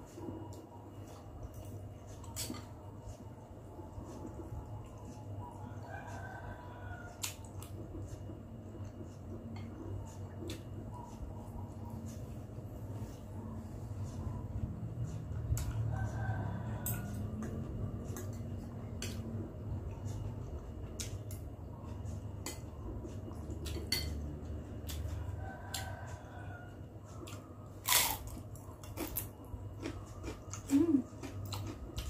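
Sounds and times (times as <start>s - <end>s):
steady low hum: 0.0s - 32.0s
cutlery clinking on glass bowl: 23.7s - 24.2s.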